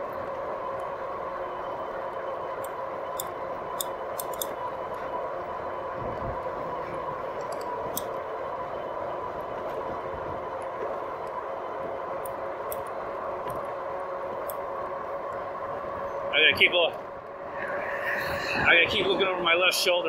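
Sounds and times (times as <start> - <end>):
bike ticks and rattles: 2.1 - 5.1, 6.1 - 8.3, 9.3 - 15.8.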